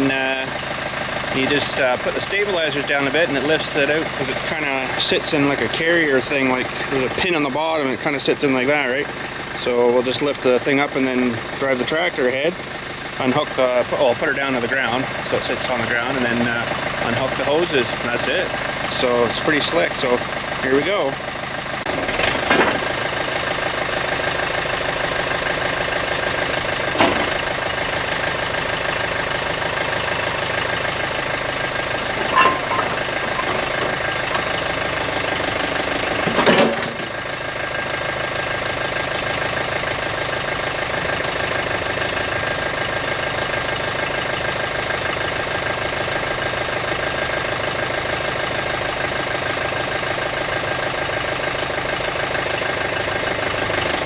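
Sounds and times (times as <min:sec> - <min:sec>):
diesel engine running: 0:00.0 - 0:54.0
hydraulic backhoe working: 0:00.0 - 0:54.0
sharp metal clunks: 0:27.0 - 0:27.4, 0:32.0 - 0:34.8.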